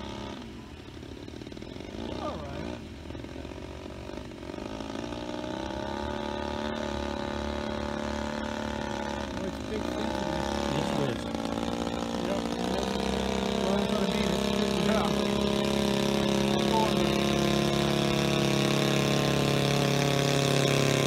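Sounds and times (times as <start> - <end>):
aircraft engine in flight: 0.0 - 21.0.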